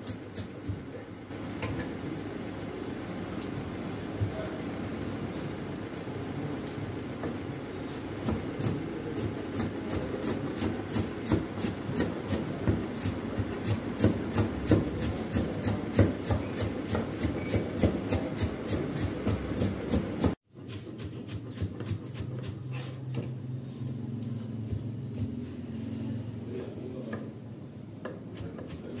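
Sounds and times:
knife chopping on wooden board: 8.2s - 23.3s, 28.0s - 29.0s.

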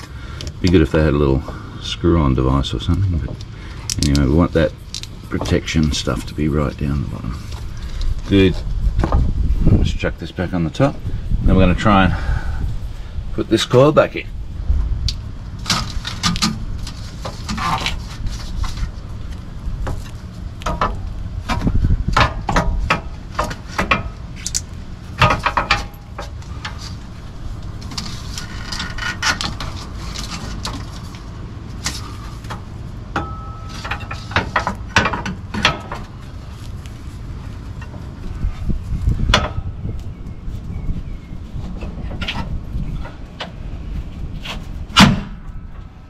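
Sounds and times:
coil spring knocking and scraping: 19.8s - 31.2s, 31.8s - 36.6s
short metallic rings: 33.2s - 34.3s.

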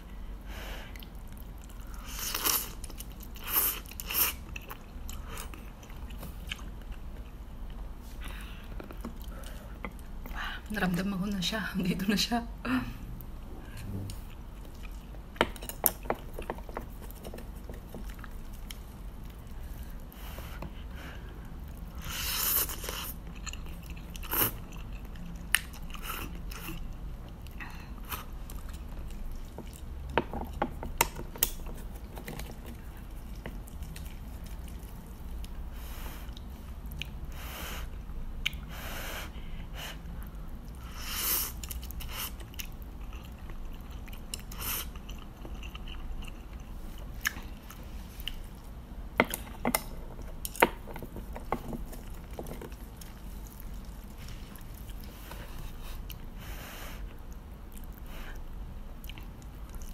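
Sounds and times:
chewing noodles: 40.1s - 48.7s.

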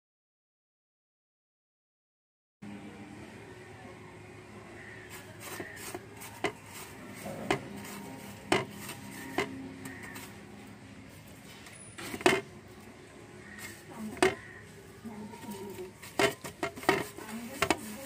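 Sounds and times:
hand rubbing spice onto fish: 5.1s - 10.5s, 15.3s - 18.0s.

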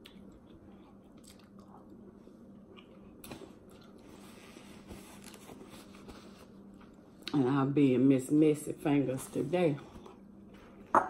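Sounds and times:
person chewing: 0.0s - 4.3s.

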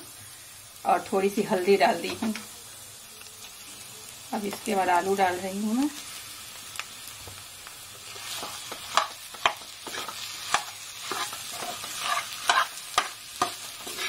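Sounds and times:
low sizzle: 0.0s - 14.0s
metal spatula scraping a pan: 8.0s - 14.0s.

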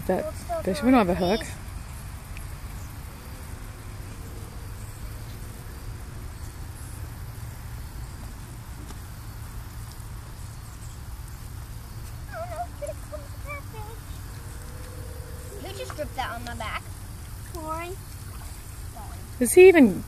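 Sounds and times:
low rumble: 12.8s - 17.5s.

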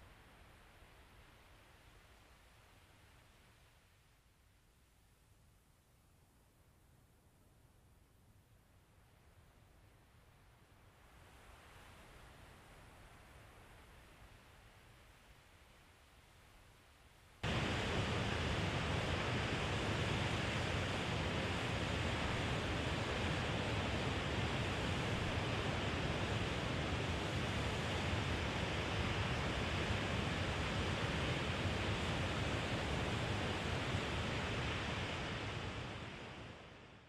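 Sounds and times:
ocean surf rushing: 17.4s - 36.6s.

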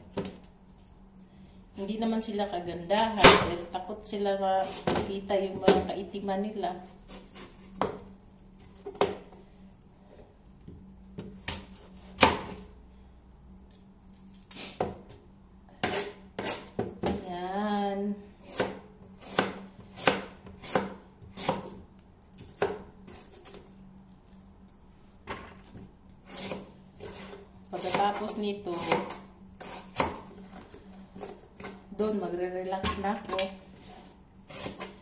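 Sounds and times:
knife cutting on plastic board: 15.8s - 16.8s.

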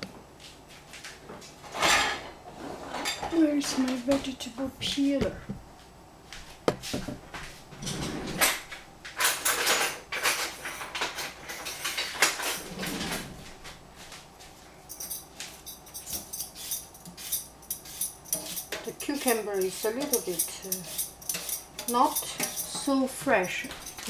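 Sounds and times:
drawers and cupboards opening: 1.6s - 3.9s, 6.9s - 13.8s
utensils clattering: 1.6s - 5.4s, 7.8s - 13.4s, 14.9s - 24.0s.

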